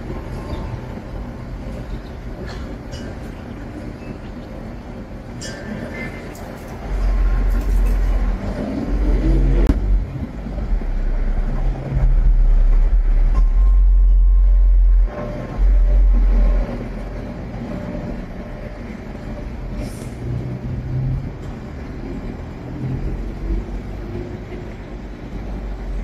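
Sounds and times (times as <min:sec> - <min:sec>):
storm wind buffeting microphone: 0:00.0 - 0:26.0.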